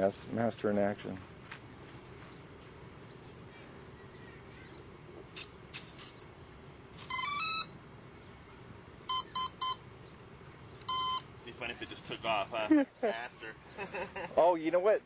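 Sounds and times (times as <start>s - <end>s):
speed controller beeps: 7.1s - 7.7s, 9.1s - 9.8s, 10.8s - 11.3s.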